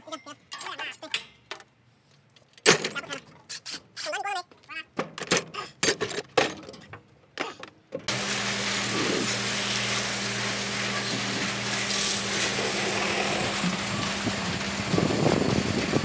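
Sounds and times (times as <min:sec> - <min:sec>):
pressure washer jet hissing: 0:08.1 - 0:16.0
pump humming: 0:08.1 - 0:16.0.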